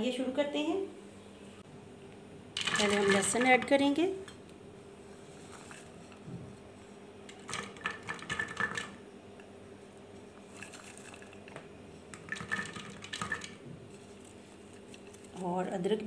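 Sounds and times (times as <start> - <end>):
faint steady hum: 0.0 - 16.0
garlic cloves clattering in plastic jar: 2.6 - 3.8.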